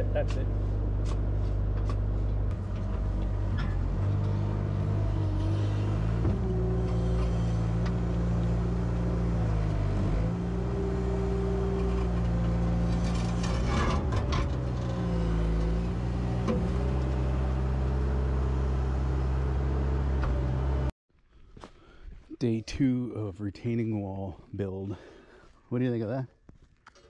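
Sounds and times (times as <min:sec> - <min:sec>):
diesel engine running: 0:00.0 - 0:20.9.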